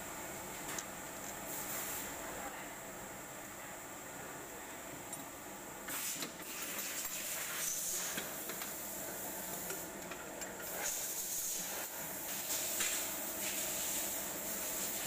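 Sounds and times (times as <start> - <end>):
steady hiss: 10.6 - 15.0.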